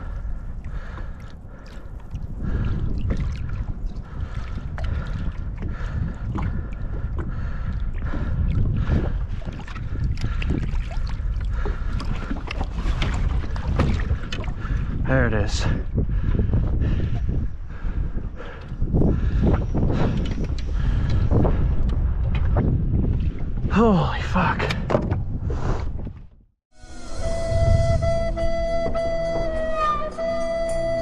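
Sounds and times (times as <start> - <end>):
wind rumbling on microphone: 0.0 - 26.5, 27.1 - 31.0
water splashing at boat side: 8.0 - 14.7.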